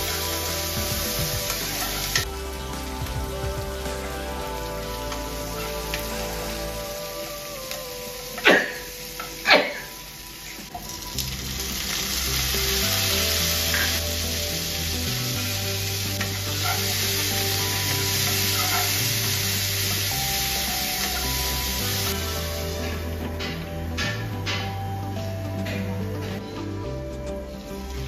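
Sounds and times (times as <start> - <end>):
vegetables sizzling in oil: 0.0 - 23.6.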